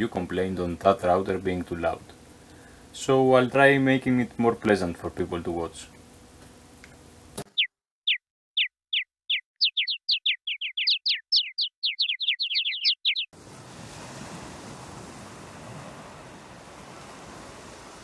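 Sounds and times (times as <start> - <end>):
bird chirps: 7.4 - 13.3.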